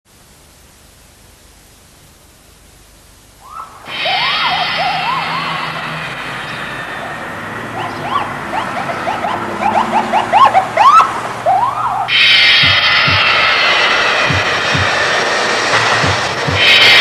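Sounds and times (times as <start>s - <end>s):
hiss: 3.4s - 9.8s, 12.1s - 17.0s
siren-like whoops: 3.4s - 12.6s.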